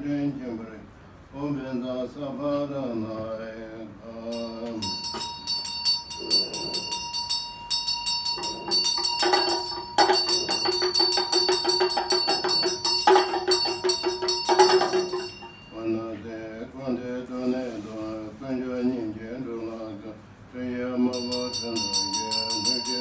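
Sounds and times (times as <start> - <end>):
chanting voice: 1.4 - 7.1, 8.4 - 23.0
low held tone: 4.2 - 16.2
ringing hand bell: 4.3 - 16.2, 21.1 - 23.0
hand drum rattling rapidly: 4.4 - 15.8.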